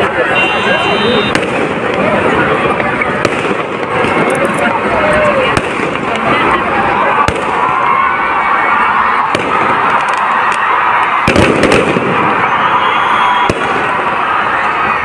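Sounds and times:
fireworks din: 0:00.0 - 0:15.0
sharp firework bangs: 0:01.2 - 0:02.2, 0:03.2 - 0:04.5, 0:05.5 - 0:06.2, 0:09.3 - 0:12.6, 0:13.4 - 0:14.0.

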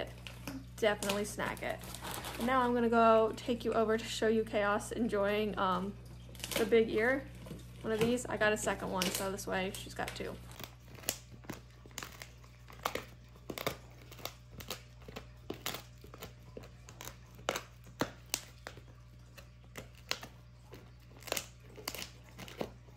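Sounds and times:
low steady hum: 0:00.0 - 0:22.9
puppy chewing crunchy ear: 0:10.0 - 0:22.9.

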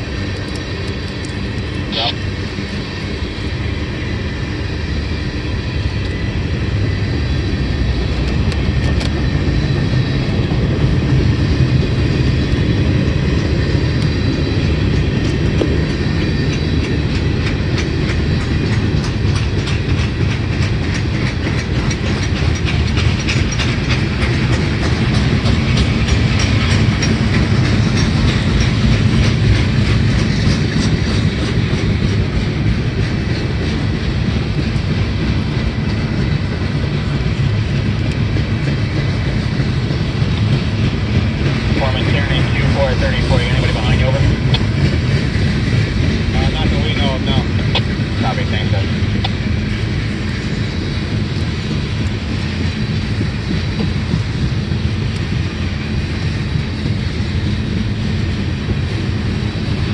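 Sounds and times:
train wheels rumbling on rail: 0:00.0 - 0:59.9
wheels clicking over rail joints: 0:12.9 - 0:55.6.

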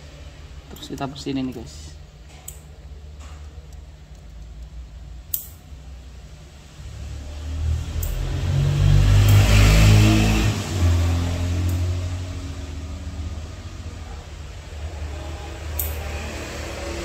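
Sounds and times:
sharp click: 0:05.3 - 0:05.6, 0:15.8 - 0:16.0.

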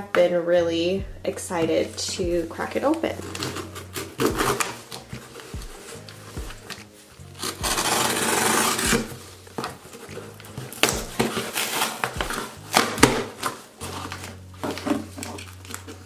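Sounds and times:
cardboard rustling and knocking: 0:01.6 - 0:16.0
blade slitting packing tape: 0:03.2 - 0:16.0.

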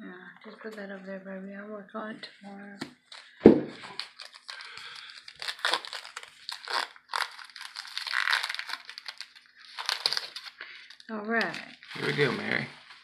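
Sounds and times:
foil wrapper crinkling: 0:03.1 - 0:12.6.

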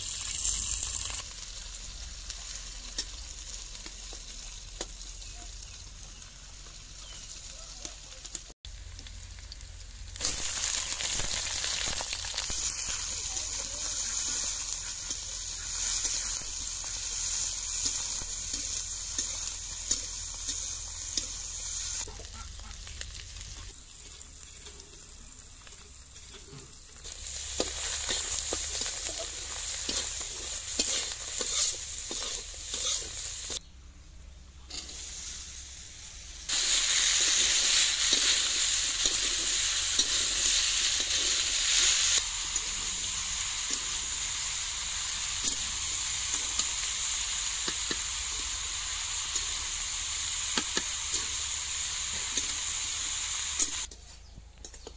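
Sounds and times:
oil sizzling in a pan: 0:00.0 - 0:54.0
metal spatula scraping a pan: 0:27.5 - 0:33.5.

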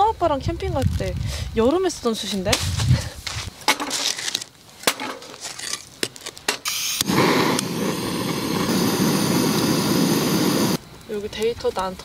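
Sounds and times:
gas torch flame hissing: 0:06.6 - 0:10.8.

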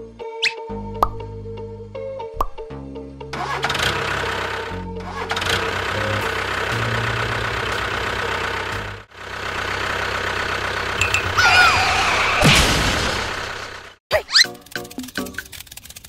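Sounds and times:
tractor engine running: 0:03.3 - 0:16.0.

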